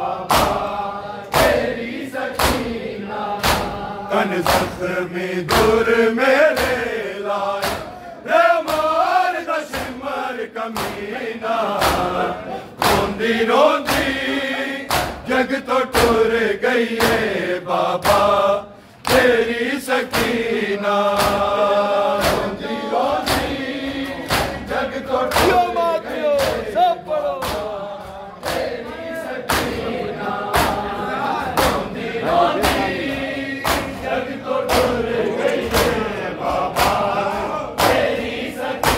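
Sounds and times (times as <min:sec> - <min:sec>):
men chanting in unison: 0:00.0 - 0:38.9
rhythmic chest-beating slaps: 0:00.0 - 0:38.9.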